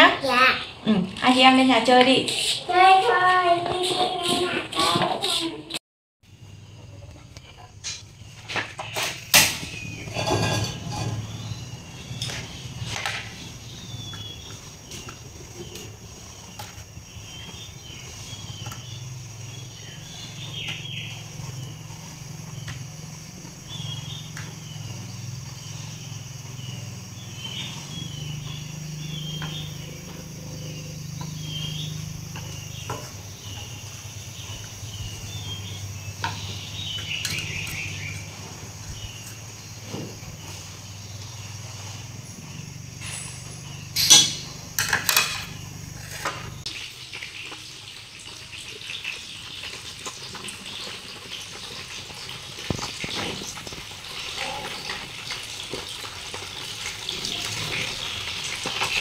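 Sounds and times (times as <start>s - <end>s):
insects: 6.2s - 59.0s
birds chirping: 6.4s - 47.6s.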